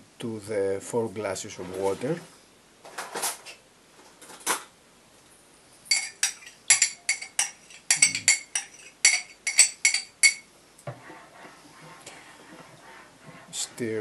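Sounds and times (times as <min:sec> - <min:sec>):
metal spoon clinking against bowl: 0:05.9 - 0:10.5.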